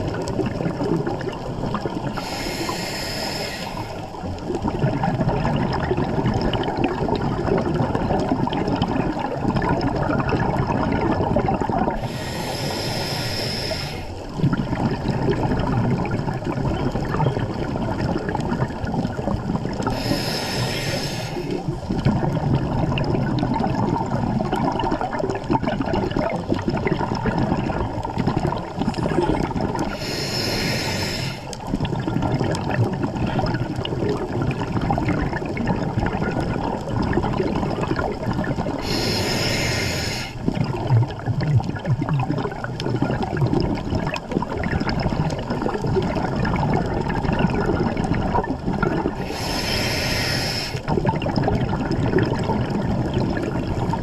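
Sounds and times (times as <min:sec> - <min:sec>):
water rush and bubbles: 0:00.0 - 0:54.0
scuba regulator hissing: 0:02.2 - 0:04.0, 0:12.0 - 0:14.2, 0:19.9 - 0:21.6, 0:29.9 - 0:31.5, 0:38.8 - 0:40.4, 0:49.2 - 0:50.8.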